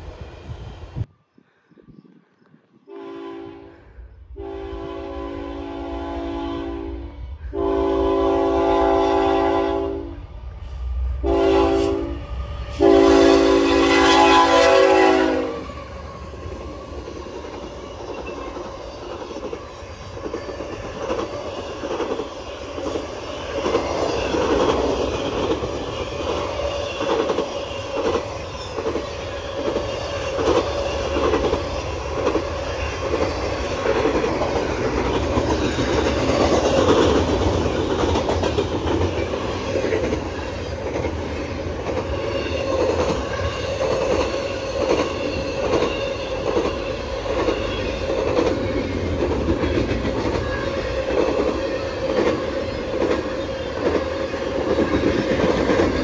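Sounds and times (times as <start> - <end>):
train rumbling past: 0.0 - 1.2, 2.8 - 56.0
locomotive air horn blasts: 2.9 - 10.2, 11.2 - 15.7.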